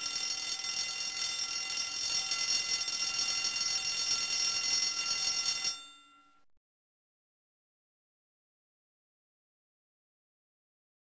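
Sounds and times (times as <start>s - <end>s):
bell alarm clock ringing: 0.0s - 6.4s.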